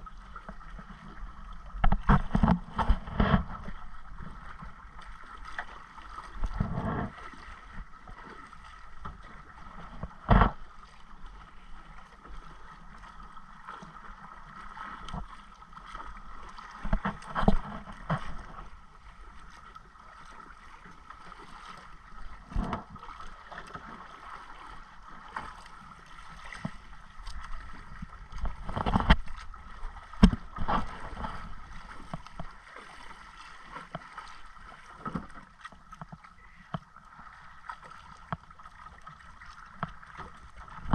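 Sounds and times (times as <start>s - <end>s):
water sloshing against canoe: 0.0s - 40.9s
sharp splashes and knocks: 1.8s - 11.0s, 14.8s - 18.7s, 21.4s - 36.8s.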